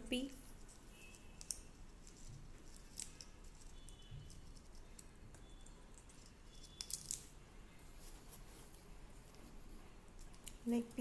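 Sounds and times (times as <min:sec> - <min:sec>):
parakeet cracking a peanut shell: 0:01.1 - 0:07.3.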